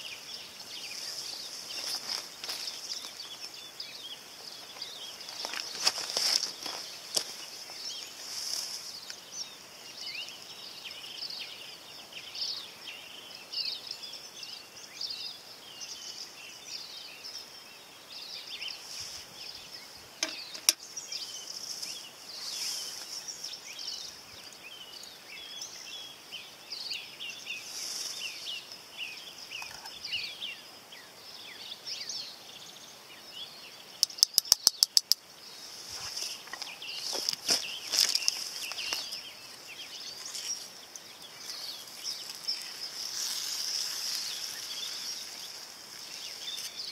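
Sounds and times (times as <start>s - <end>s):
birds chirping: 0.0s - 46.9s
steady hiss: 0.0s - 46.9s
sharp clicks: 34.0s - 35.2s.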